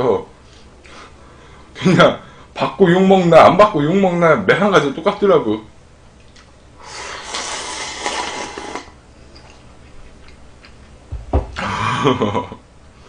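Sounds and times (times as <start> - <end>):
person slurping noodles: 6.8 - 9.0
quiet chewing: 9.3 - 11.0
short thump: 11.1 - 11.6.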